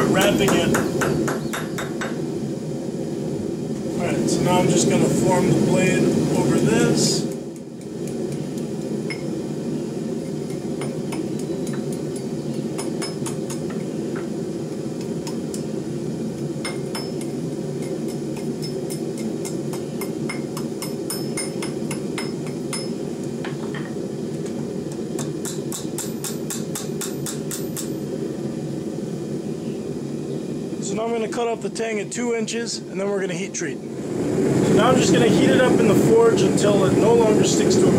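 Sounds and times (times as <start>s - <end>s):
hammer striking steel on anvil: 0.2s - 2.2s, 10.5s - 13.8s, 16.6s - 23.9s, 25.2s - 28.0s.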